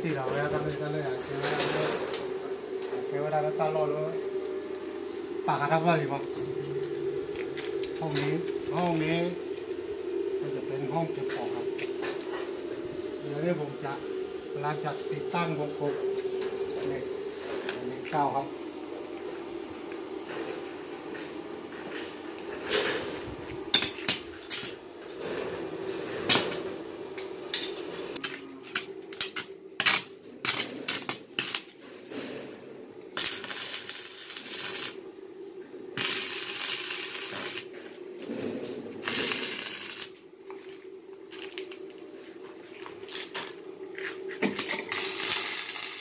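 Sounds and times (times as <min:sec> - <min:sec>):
welding arc crackling: 0:00.0 - 0:09.8, 0:22.3 - 0:24.8, 0:26.3 - 0:31.8, 0:33.1 - 0:35.1, 0:35.9 - 0:37.8, 0:38.9 - 0:40.3, 0:44.5 - 0:46.0
low hum: 0:00.0 - 0:46.0.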